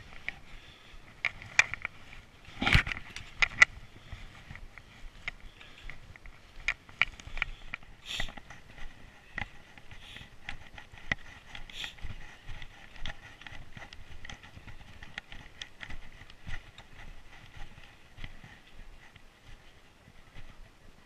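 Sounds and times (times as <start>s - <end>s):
footsteps crunching on snow: 0.0s - 21.0s.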